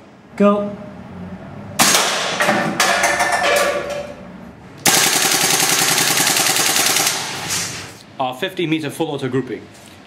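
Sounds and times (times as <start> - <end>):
airsoft rifle shots: 1.8 - 2.5, 4.8 - 7.4
rapid full-auto airsoft burst: 4.8 - 7.5.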